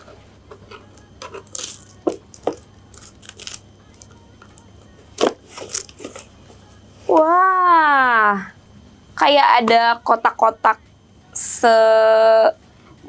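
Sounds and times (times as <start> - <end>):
tape peeled off cardboard: 2.9 - 3.6, 5.2 - 6.3.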